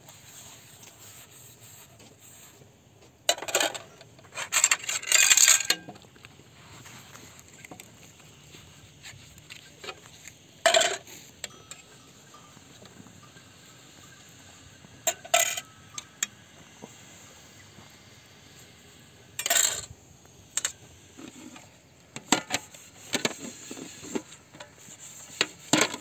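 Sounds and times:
metal pots clinking: 0:10.6 - 0:16.3.

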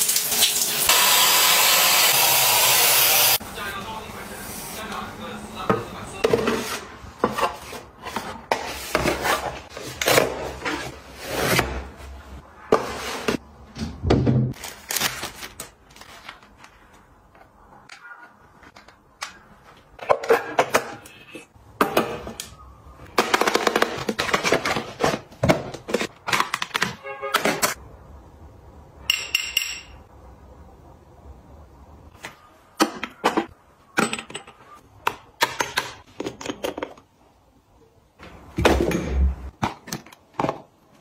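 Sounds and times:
plastic wrap crinkling: 0:14.6 - 0:16.8.

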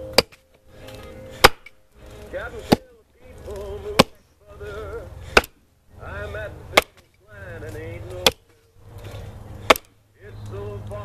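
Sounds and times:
hand tool chopping into log: 0:00.0 - 0:04.2, 0:05.2 - 0:05.6, 0:06.7 - 0:10.0
old-time singing from music player: 0:01.2 - 0:08.9, 0:09.6 - 0:11.0.

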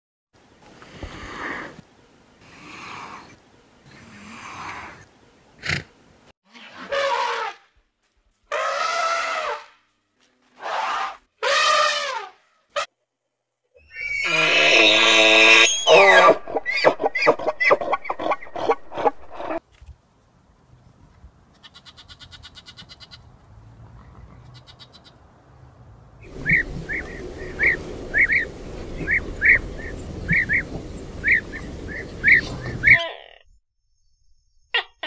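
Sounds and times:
outdoor hiss: 0:00.4 - 0:06.3, 0:25.7 - 0:32.9
small bird chirping: 0:26.2 - 0:33.0.

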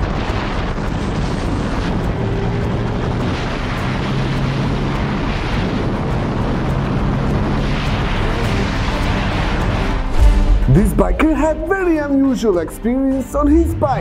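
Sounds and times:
motorcycle engine accelerating: 0:00.0 - 0:10.8
wind buffeting microphone: 0:00.0 - 0:12.3.

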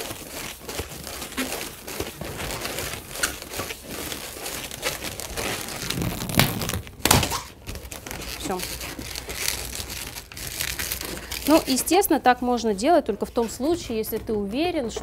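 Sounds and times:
balloons rubbing and crinkling: 0:00.0 - 0:15.0.

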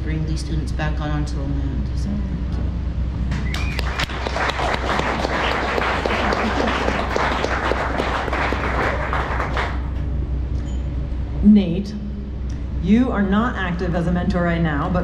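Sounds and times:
audience applauding: 0:03.4 - 0:09.9.

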